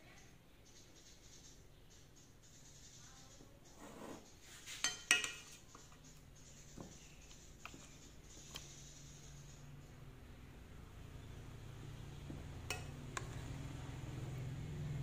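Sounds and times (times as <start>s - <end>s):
metal spoon clinking on dishware: 4.8s - 6.0s, 12.6s - 13.4s.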